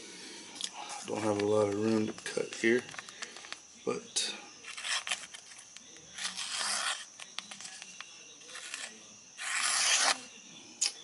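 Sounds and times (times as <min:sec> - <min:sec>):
knife slicing paper: 0:06.2 - 0:07.7, 0:08.5 - 0:10.2.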